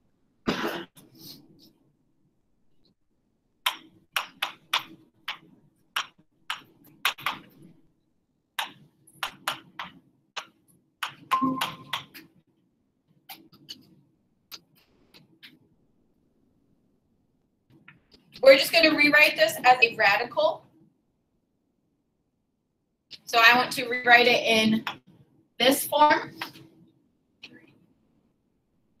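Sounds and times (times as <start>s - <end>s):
marker writing on a board: 3.7s - 7.7s.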